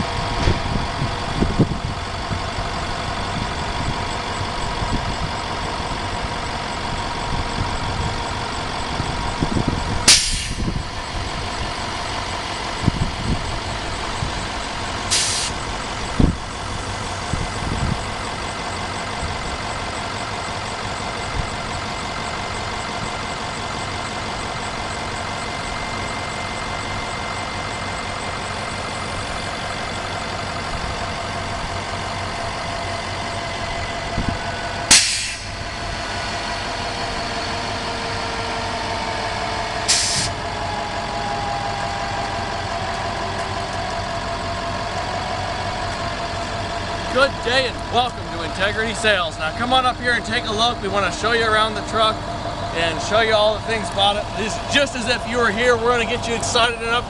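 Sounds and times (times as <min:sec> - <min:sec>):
diesel engine running: 0:00.0 - 0:57.0
hydraulic whining tones: 0:00.0 - 0:57.0
low thump: 0:00.4 - 0:00.8
short sharp hisses: 0:10.1 - 0:10.6, 0:15.1 - 0:15.6, 0:34.9 - 0:35.5, 0:39.9 - 0:40.3.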